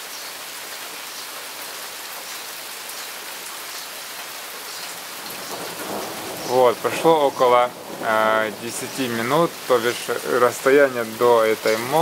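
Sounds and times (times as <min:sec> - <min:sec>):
heavy rain hissing: 0:02.7 - 0:12.0.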